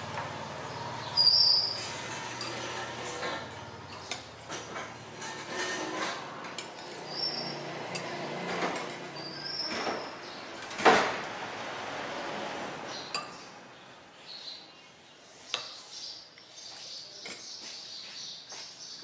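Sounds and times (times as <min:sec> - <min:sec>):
high squeaks: 0:01.0 - 0:03.6, 0:04.7 - 0:08.1, 0:09.0 - 0:10.4
metal spoon scraping ceramic bowl: 0:01.2 - 0:09.9.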